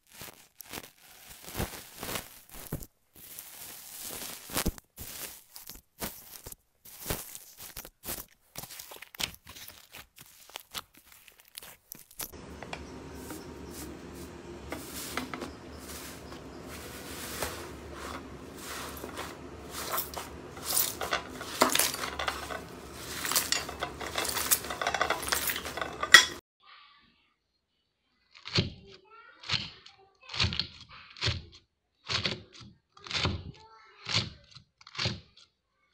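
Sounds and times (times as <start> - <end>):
slime crackles and pops: 0.0 - 12.3.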